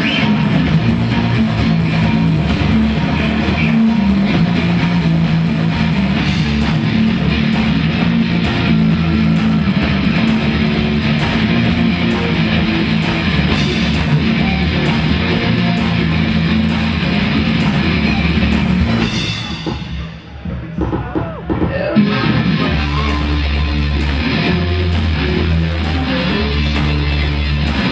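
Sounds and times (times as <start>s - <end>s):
live rock band playing: 0.0s - 27.9s.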